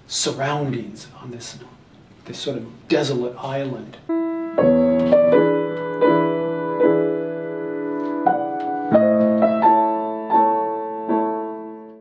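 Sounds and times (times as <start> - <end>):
slow solo piano: 4.1 - 12.0.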